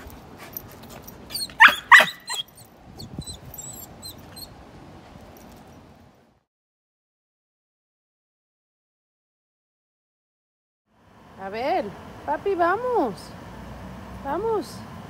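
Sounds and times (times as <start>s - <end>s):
puppy yelping: 1.2s - 4.6s.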